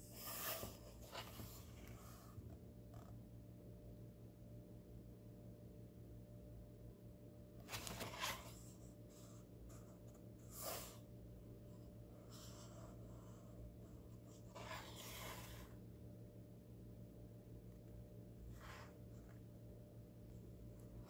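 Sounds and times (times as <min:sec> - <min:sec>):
steady low hum: 0:00.0 - 0:21.0
fingertip rubbing paper page: 0:10.4 - 0:11.0, 0:14.4 - 0:15.8.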